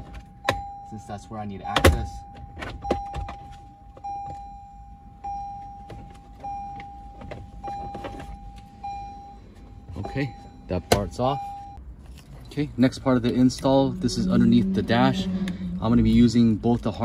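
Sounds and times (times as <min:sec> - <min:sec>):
car warning chime beeping: 0:00.0 - 0:11.8.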